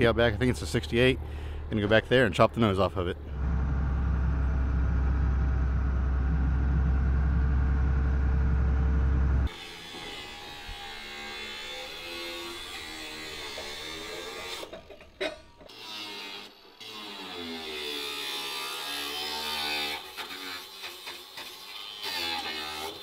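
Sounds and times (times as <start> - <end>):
loader engine rumbling: 0.0 - 9.5.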